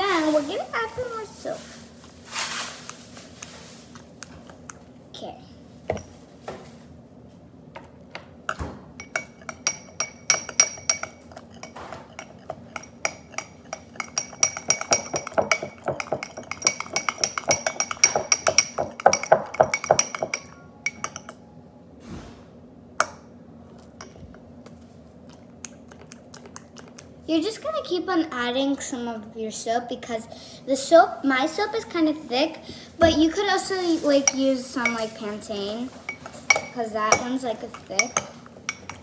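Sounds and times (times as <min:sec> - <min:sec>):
metal spoon clinking glass bowl: 0:09.0 - 0:21.4, 0:36.1 - 0:39.0.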